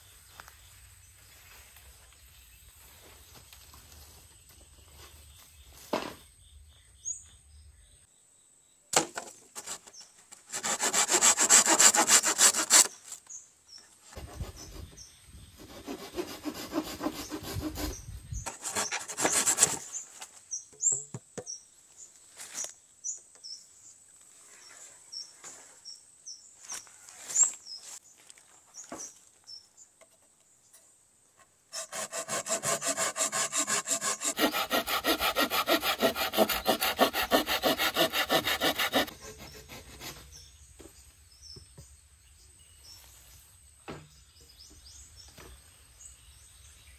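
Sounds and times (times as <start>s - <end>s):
bamboo knocks and leaf rustles: 5.7s - 6.3s, 8.9s - 9.5s
hand saw cutting bamboo: 9.6s - 9.9s, 10.5s - 13.0s, 15.6s - 19.9s, 31.7s - 40.4s.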